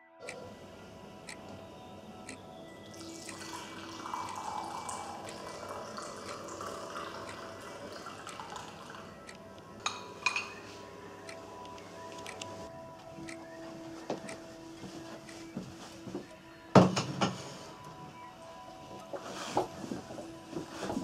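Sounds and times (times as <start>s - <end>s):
hot drink pouring into cup: 2.9s - 9.1s
cup clinking: 3.0s - 9.0s, 9.8s - 10.7s.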